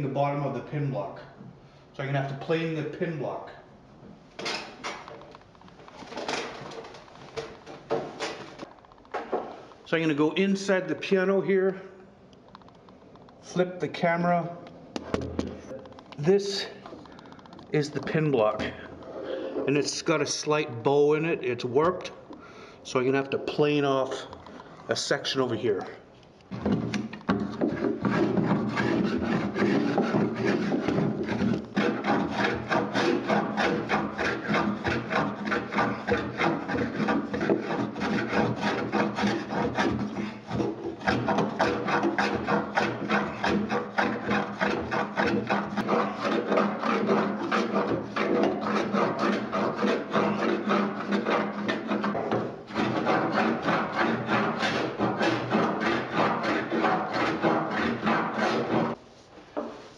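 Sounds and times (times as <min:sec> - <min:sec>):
hand plane shaving wood: 0:27.4 - 0:59.0.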